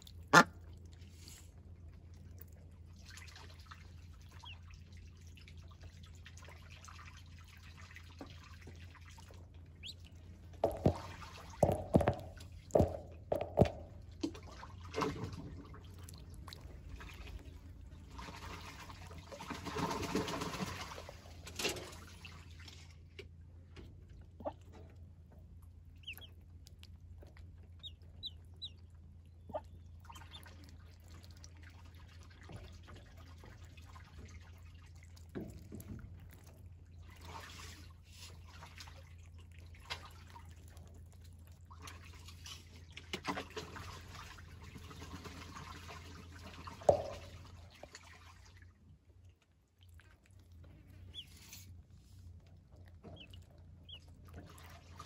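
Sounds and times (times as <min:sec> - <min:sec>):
ducklings splashing in water: 0:00.0 - 0:55.0
duckling peeps: 0:09.8 - 0:11.0, 0:26.0 - 0:26.9, 0:27.7 - 0:28.8, 0:29.5 - 0:30.5, 0:51.0 - 0:51.4, 0:53.0 - 0:54.2
sharp knocks on metal tub: 0:10.6 - 0:13.9.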